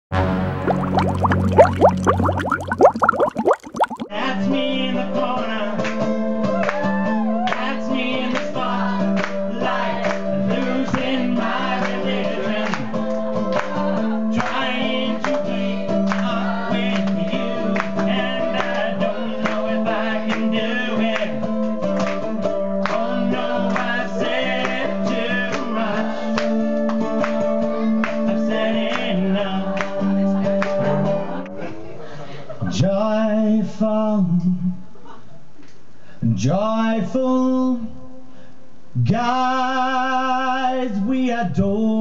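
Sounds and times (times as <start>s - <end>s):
person singing with vibrato: 0.7s - 4.1s.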